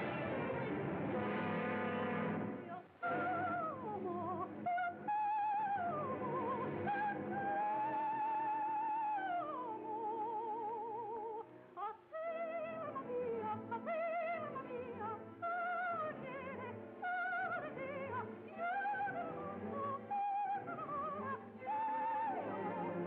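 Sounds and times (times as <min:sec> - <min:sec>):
operatic singing: 0:00.0 - 0:23.0.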